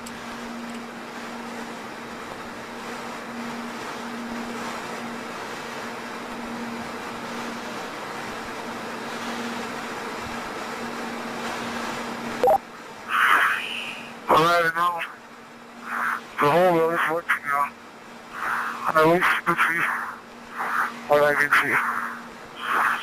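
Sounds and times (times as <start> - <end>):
steady hiss: 13.0 - 23.0.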